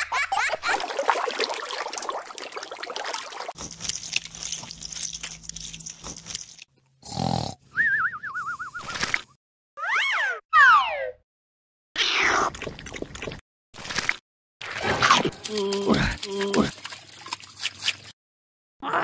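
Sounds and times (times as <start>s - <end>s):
wobbling whistle-like tone: 7.7s - 8.9s.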